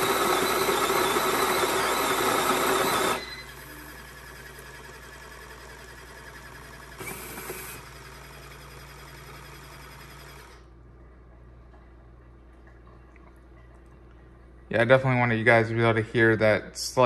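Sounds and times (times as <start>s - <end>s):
coffee maker motor spinning: 0.0s - 10.7s
faint hum: 10.5s - 17.0s.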